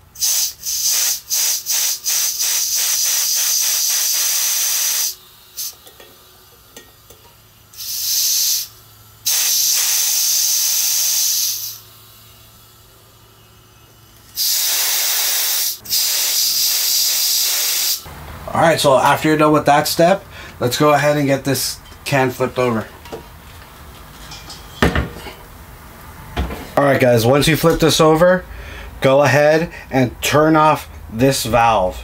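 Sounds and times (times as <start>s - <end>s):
propane vapour hissing spurts: 0.1s - 18.1s.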